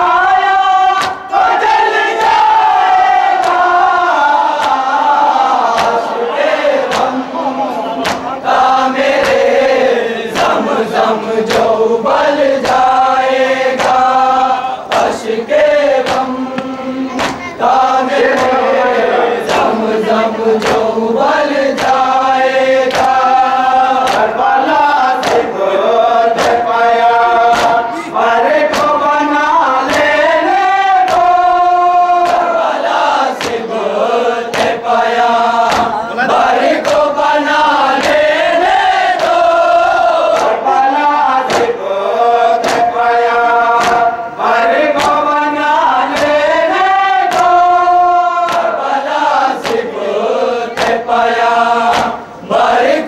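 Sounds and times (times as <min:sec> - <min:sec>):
men chanting a lament: 0:00.0 - 0:53.0
hands slapping chests: 0:01.0 - 0:01.3, 0:03.3 - 0:03.8, 0:04.5 - 0:05.0, 0:05.6 - 0:06.2, 0:06.8 - 0:07.2, 0:08.0 - 0:09.6, 0:10.3 - 0:10.6, 0:11.4 - 0:11.8, 0:12.6 - 0:14.1, 0:14.9 - 0:15.2, 0:15.9 - 0:17.5, 0:18.2 - 0:18.6, 0:19.4 - 0:19.8, 0:20.6 - 0:21.0, 0:21.7 - 0:22.2, 0:22.8 - 0:23.4, 0:24.0 - 0:24.4, 0:25.1 - 0:25.6, 0:26.3 - 0:26.7, 0:27.5 - 0:27.9, 0:28.5 - 0:29.0, 0:29.9 - 0:30.1, 0:31.0 - 0:31.4, 0:32.2 - 0:32.6, 0:33.3 - 0:33.7, 0:34.5 - 0:34.8, 0:35.6 - 0:36.0, 0:36.6 - 0:37.1, 0:39.2 - 0:39.4, 0:40.3 - 0:40.6, 0:41.4 - 0:41.8, 0:42.6 - 0:43.0, 0:43.8 - 0:44.1, 0:44.8 - 0:45.2, 0:46.0 - 0:46.4, 0:47.2 - 0:47.7, 0:48.4 - 0:48.8, 0:49.6 - 0:49.9, 0:50.7 - 0:51.1, 0:51.9 - 0:52.2.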